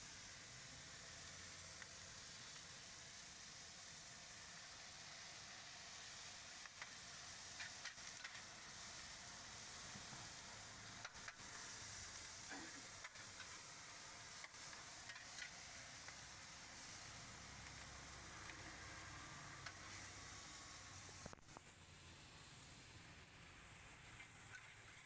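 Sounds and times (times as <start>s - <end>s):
noodles sizzling in a wok: 0.0s - 25.0s
metal spatula scraping a wok: 14.5s - 15.8s.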